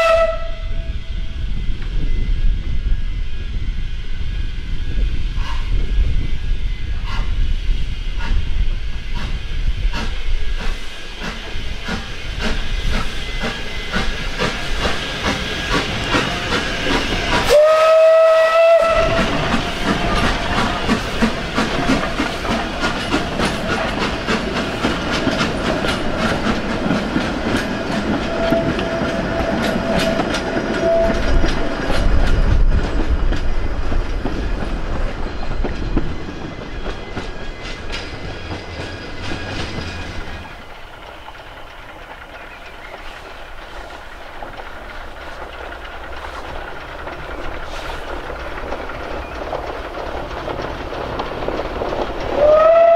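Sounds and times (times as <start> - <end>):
steam whistle: 0.0 - 1.1, 17.3 - 20.2, 28.2 - 31.4, 52.4 - 52.9
steam engine chuffing and hissing: 0.8 - 52.9.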